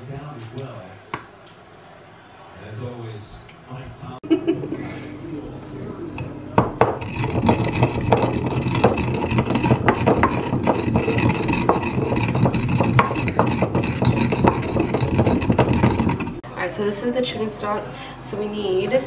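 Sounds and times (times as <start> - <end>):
pestle grinding in mortar: 6.6 - 16.4
peppercorns cracking: 7.0 - 16.4.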